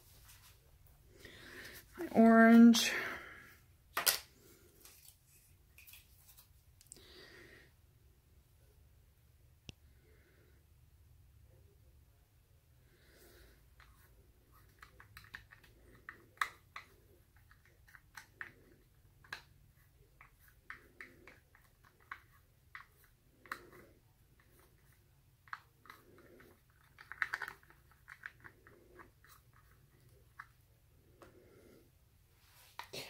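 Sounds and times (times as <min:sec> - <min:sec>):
stir stick scraping plastic cup: 0:13.8 - 0:30.5.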